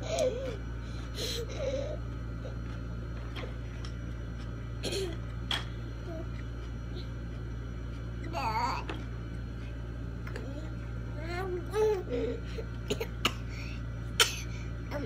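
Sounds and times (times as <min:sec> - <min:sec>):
low room tone hum: 0:00.0 - 0:15.0.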